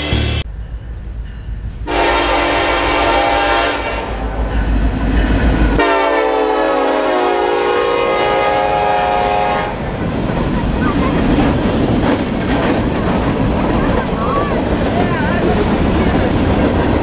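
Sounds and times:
diesel locomotives rumbling: 0.0s - 17.0s
locomotive horn blasts: 1.9s - 4.4s, 5.8s - 9.8s.

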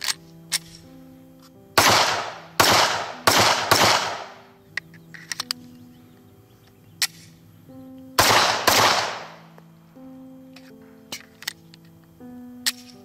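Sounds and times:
pistol shots with echo: 1.8s - 4.5s, 8.2s - 9.4s.

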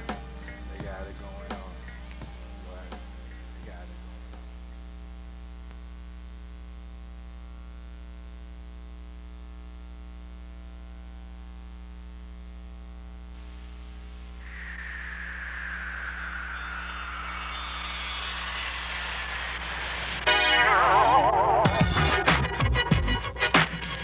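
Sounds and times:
faint hiss: 13.3s - 20.6s
rushing sound falling in pitch: 14.4s - 22.0s.

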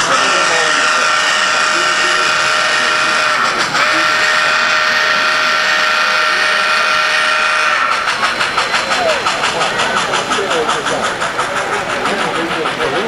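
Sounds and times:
steam locomotive whistle: 0.0s - 9.3s.

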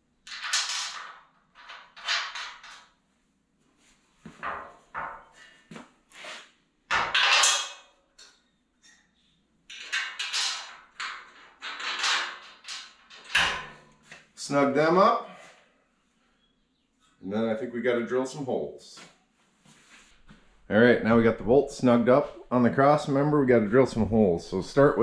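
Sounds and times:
metal clanks and bolt rattles: 6.1s - 8.4s, 9.7s - 14.1s.

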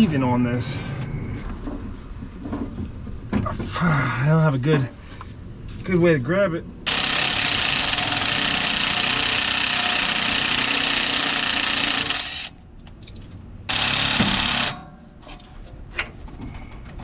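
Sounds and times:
impact wrench hammering: 6.9s - 12.6s, 13.7s - 15.1s.

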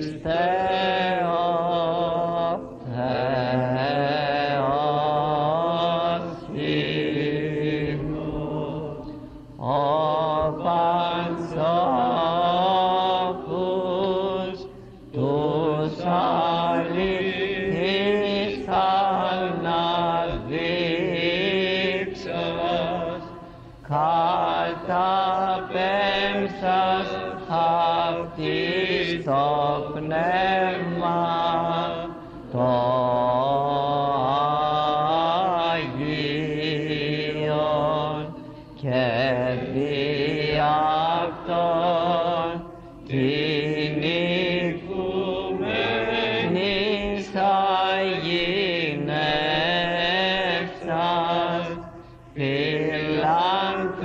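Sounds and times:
low vocal drone: 0.0s - 54.0s
person chanting slow melody: 0.0s - 54.0s.

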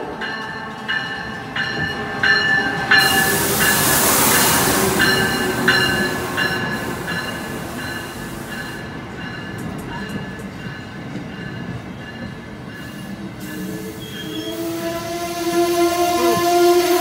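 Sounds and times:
train wheels rumbling: 0.0s - 17.0s
high-pitched wheel squeal: 13.6s - 17.0s.

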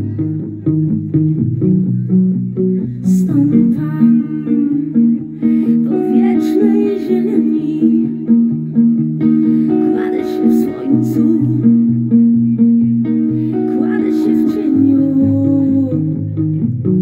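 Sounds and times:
electric guitar picking: 0.0s - 17.0s
woman singing: 3.0s - 8.8s, 9.4s - 16.4s.

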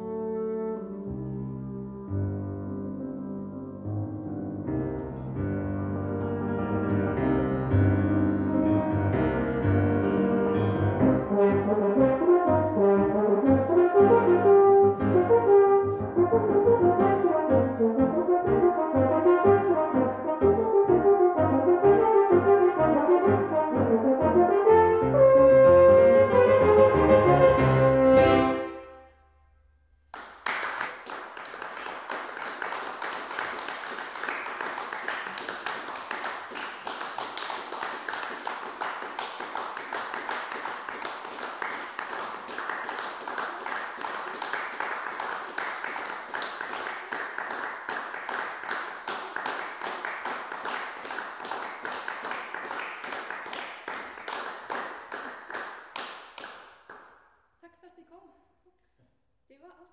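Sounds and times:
audience applauding: 30.1s - 57.1s.

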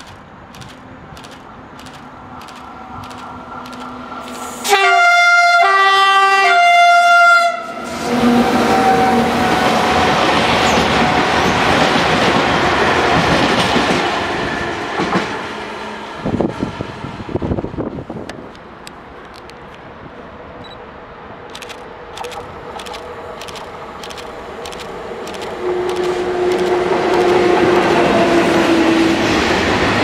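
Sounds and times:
train wheels rumbling on rails: 0.0s - 4.9s, 7.8s - 19.7s, 21.5s - 30.0s
two-tone locomotive horn: 4.6s - 10.2s
wheel clicks: 21.7s - 28.1s.

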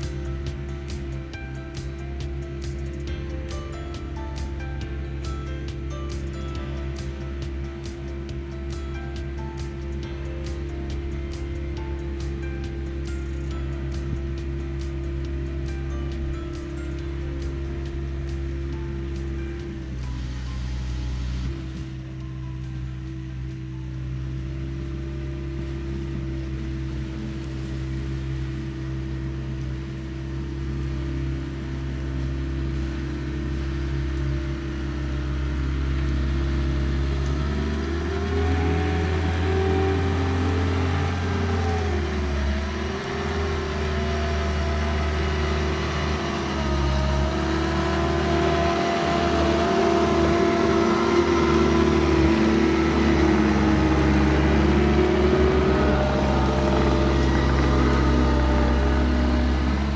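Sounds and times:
diesel engine revving: 0.0s - 59.9s.

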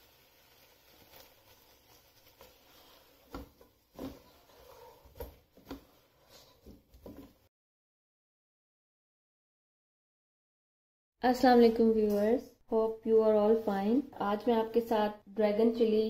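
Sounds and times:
spatula scraping a cooking pot: 0.9s - 7.2s.

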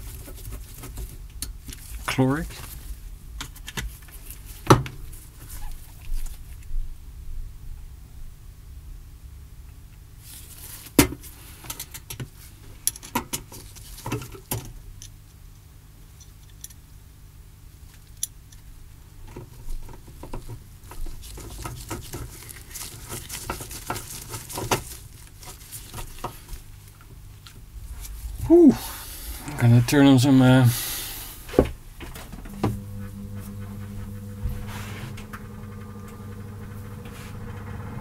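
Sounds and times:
rustling: 0.0s - 6.7s, 19.5s - 30.0s, 31.2s - 37.8s
small parts clicking and tapping: 11.6s - 15.2s, 16.2s - 16.8s, 17.9s - 18.7s.

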